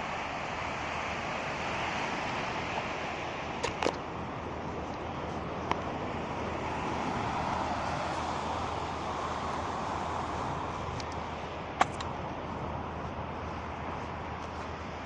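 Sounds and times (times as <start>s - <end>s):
distant machinery hum: 0.0s - 15.0s
sharp click: 11.8s - 12.1s.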